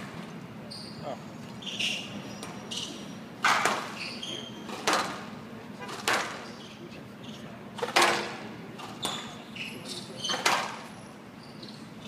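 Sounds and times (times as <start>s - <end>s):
squash ball hits: 3.4s - 4.0s, 7.8s - 8.4s.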